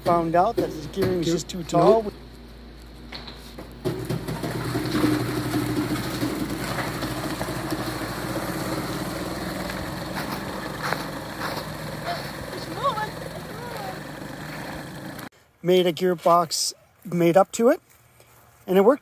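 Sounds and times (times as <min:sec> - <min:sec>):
electric motor humming: 0:03.8 - 0:15.3.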